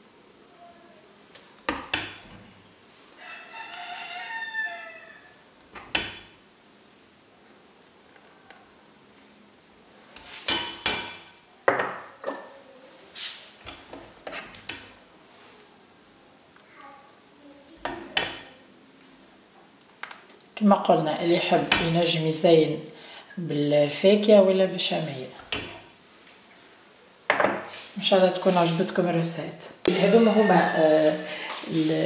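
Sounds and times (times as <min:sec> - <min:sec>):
rooster crowing: 0:03.2 - 0:05.4, 0:29.9 - 0:31.4.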